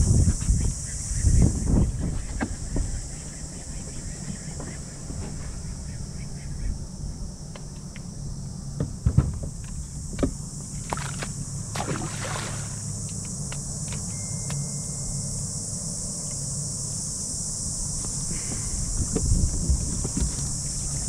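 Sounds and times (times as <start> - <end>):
wind rumble on microphone: 0.0 - 13.8, 17.3 - 21.0
water around kayak: 0.0 - 14.2, 18.0 - 21.0
water splash: 10.8 - 12.8.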